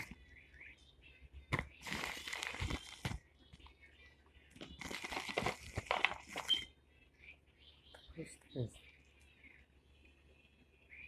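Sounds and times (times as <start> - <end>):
bubble wrap crinkling: 1.8 - 3.2, 4.6 - 6.6.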